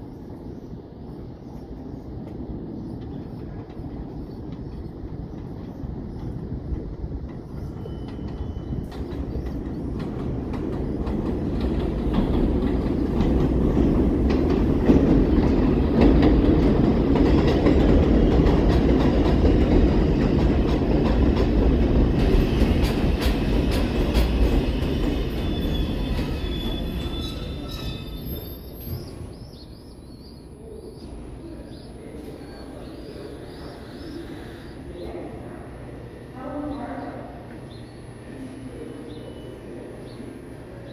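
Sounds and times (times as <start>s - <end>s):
train wheels rumbling on rails: 0.0s - 40.9s
high brake squeals: 25.4s - 29.2s.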